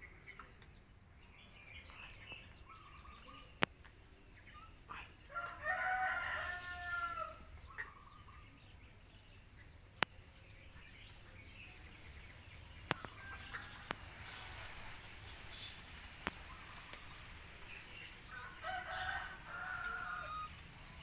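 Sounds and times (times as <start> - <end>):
small birds chirping: 0.0 - 21.0
rooster crowing: 5.3 - 7.5, 18.3 - 20.6.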